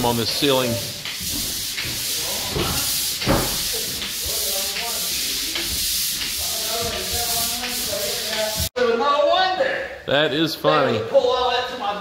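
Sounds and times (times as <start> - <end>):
pole sander rasping on ceiling: 0.0 - 8.7.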